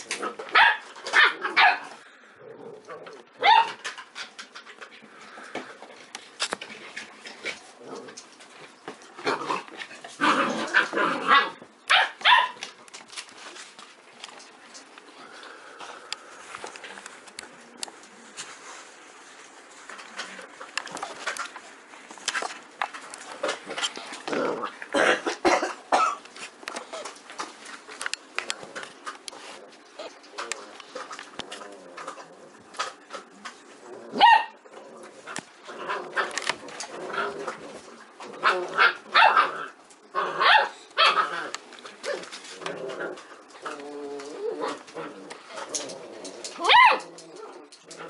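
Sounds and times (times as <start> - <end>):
dogs barking: 0.4 - 2.0, 10.7 - 12.6, 34.1 - 34.6, 46.6 - 47.1
dogs scuffling: 3.1 - 48.0.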